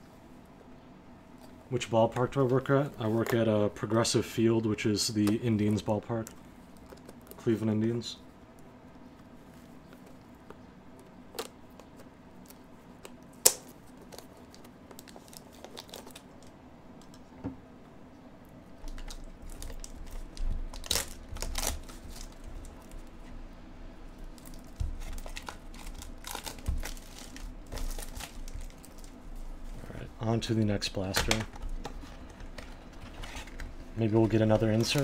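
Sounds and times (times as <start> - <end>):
cardboard and wrapping tearing: 19.0 - 23.0, 24.4 - 29.1.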